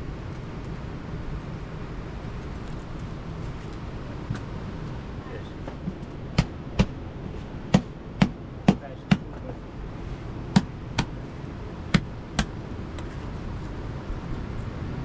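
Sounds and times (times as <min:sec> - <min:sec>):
dough slapped by hand: 0:10.5 - 0:11.1, 0:11.9 - 0:12.6.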